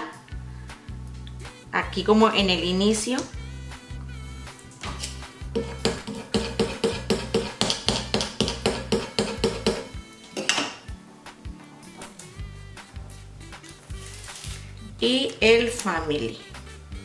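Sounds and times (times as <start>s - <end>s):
background music: 0.0s - 17.0s
hands rubbing on wooden board: 5.0s - 7.8s, 8.4s - 9.9s.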